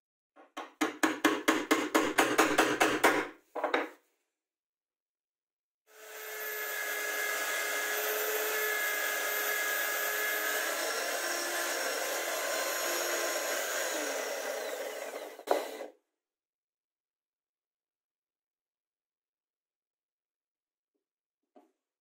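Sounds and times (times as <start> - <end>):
electric drill whining: 5.9 - 15.9.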